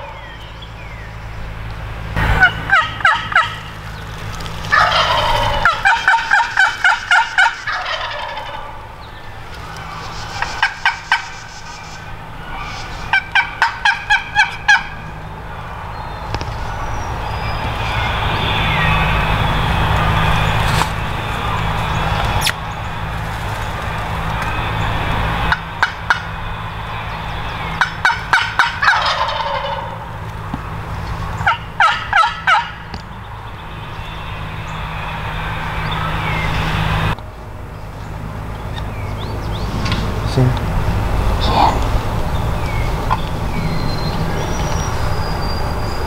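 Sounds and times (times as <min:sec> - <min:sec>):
turkey gobbling: 0:00.0 - 0:00.4, 0:02.2 - 0:16.9, 0:25.3 - 0:33.0, 0:41.4 - 0:44.5.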